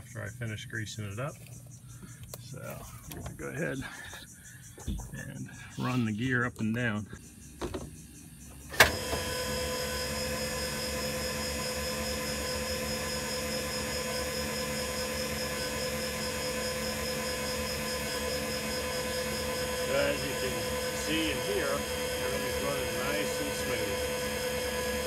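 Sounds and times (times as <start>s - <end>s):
electric motor whine: 8.5s - 25.0s.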